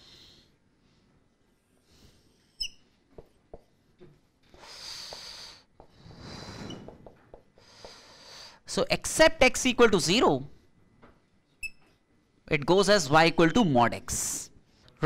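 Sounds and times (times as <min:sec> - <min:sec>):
whiteboard marker squeaking: 0:02.5 - 0:03.3, 0:11.6 - 0:12.0.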